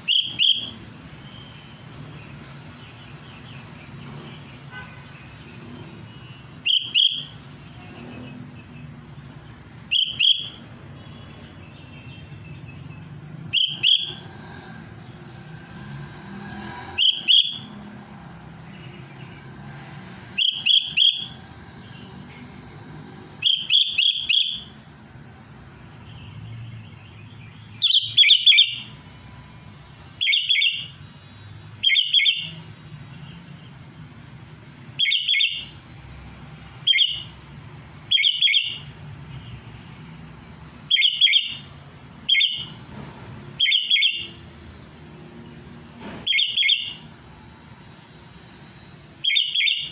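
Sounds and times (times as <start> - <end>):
bird chattering calls: 27.8 - 28.9.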